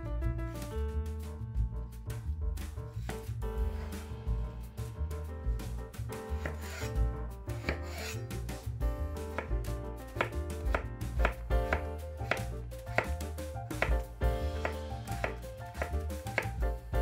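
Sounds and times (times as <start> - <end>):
background music: 0.0 - 17.0
knife cutting potatoes on board: 6.1 - 17.0.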